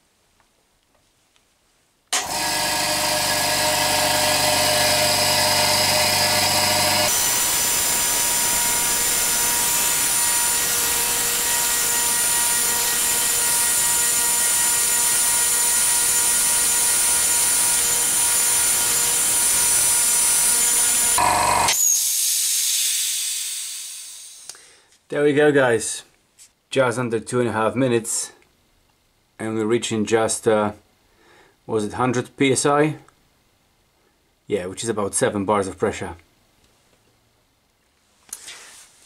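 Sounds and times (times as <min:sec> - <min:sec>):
air compressor running: 0:02.2 - 0:24.5
hiss of released air: 0:21.8 - 0:24.6.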